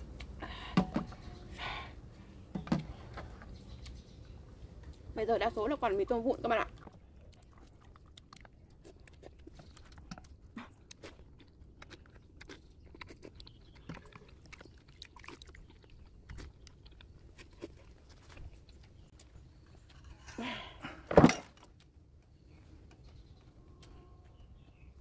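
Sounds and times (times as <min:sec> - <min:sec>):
chewing noodles: 0:06.4 - 0:20.0.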